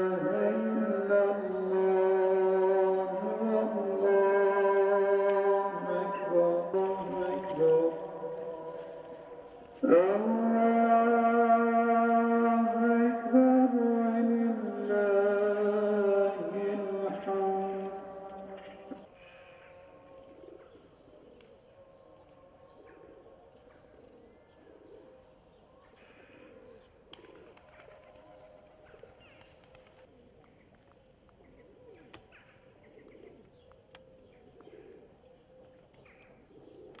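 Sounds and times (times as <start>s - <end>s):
small birds chirping: 16.9s - 37.0s
pigeons cooing: 18.0s - 37.0s.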